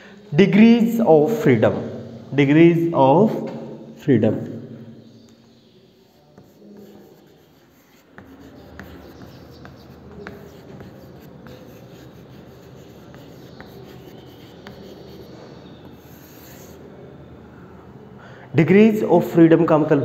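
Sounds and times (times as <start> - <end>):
chalk tapping on board: 5.5 - 16.8
chalk scratching on chalkboard: 5.5 - 17.0.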